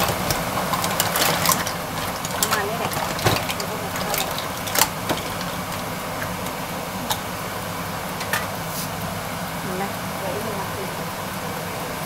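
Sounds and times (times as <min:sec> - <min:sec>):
mussel shells clacking in pot: 0:00.0 - 0:07.4
steady hum: 0:00.0 - 0:12.0.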